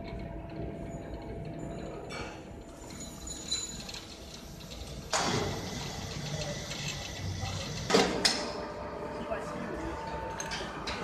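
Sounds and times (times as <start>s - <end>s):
loud machine noise: 3.0s - 11.0s
drilling machine humming: 4.0s - 9.0s.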